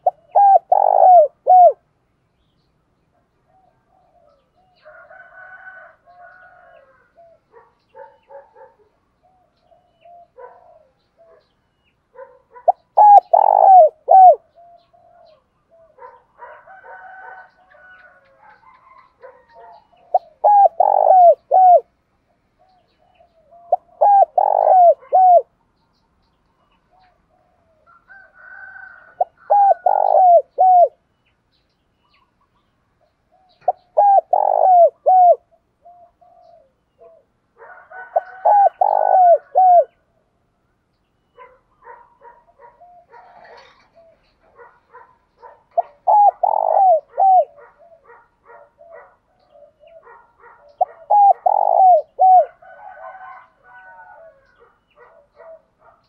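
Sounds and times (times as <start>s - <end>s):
dove cooing: 0.0s - 1.9s, 3.4s - 11.5s, 12.1s - 21.9s, 22.6s - 25.6s, 26.9s - 31.0s, 33.3s - 40.1s, 41.4s - 56.0s
faint bird chirps: 41.0s - 52.6s.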